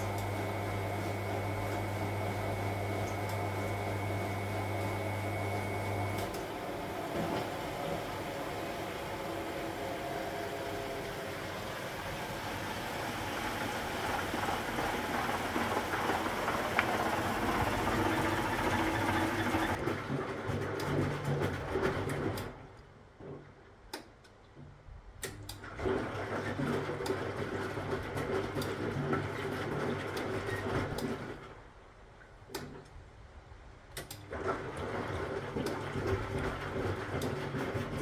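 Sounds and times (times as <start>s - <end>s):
washing machine drum turning: 0.0s - 22.6s
water rushing in: 3.5s - 19.8s
laundry sloshing and knocking: 6.6s - 22.4s, 34.3s - 38.0s.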